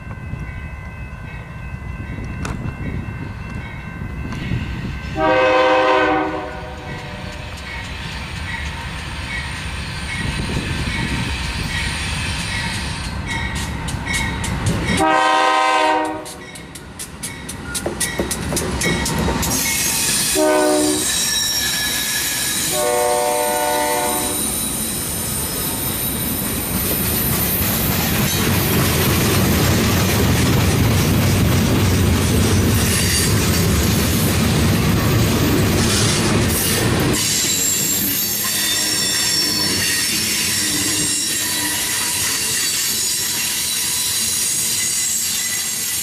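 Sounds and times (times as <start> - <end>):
locomotive air horn: 5.2 - 7.5, 15.0 - 16.4, 20.2 - 21.2, 22.6 - 24.6.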